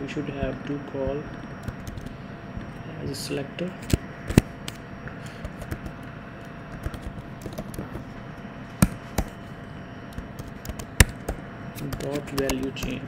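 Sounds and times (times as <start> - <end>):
typing on computer keyboard: 6.8 - 7.8, 10.4 - 13.0.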